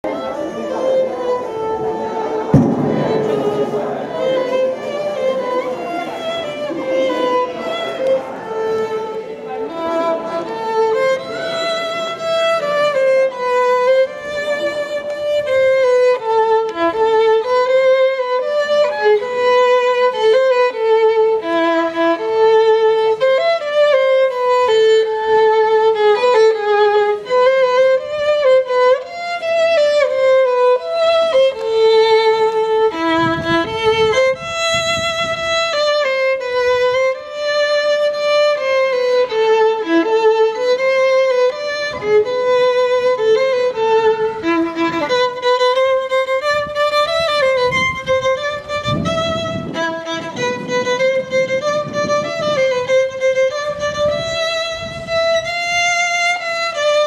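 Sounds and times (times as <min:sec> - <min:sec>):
solo violin dance tune: 0:00.0 - 0:57.0
sharp knock: 0:02.4 - 0:06.1.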